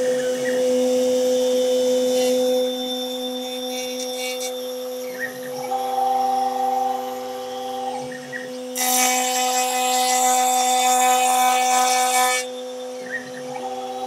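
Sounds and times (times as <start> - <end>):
router bit cutting wood: 2.0 - 4.8, 8.8 - 12.6.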